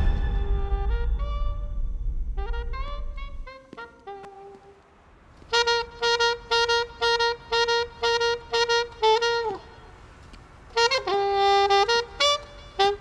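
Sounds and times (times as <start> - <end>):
alto saxophone playing: 2.4 - 13.0.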